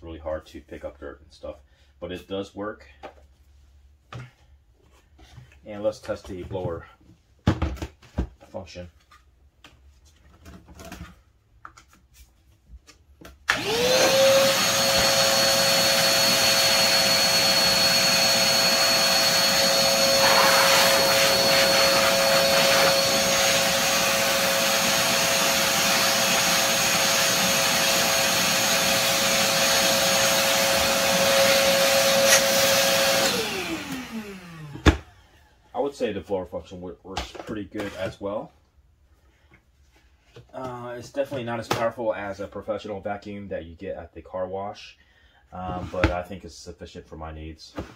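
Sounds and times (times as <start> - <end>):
shop vacuum motor whine: 13.5 - 35.1.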